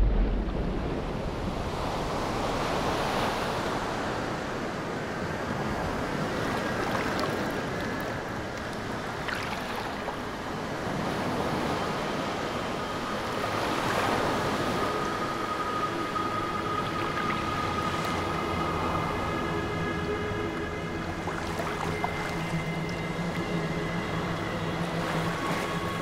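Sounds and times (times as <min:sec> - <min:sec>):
waves and surf: 0:00.0 - 0:26.0
faint high steady tone: 0:10.4 - 0:26.0.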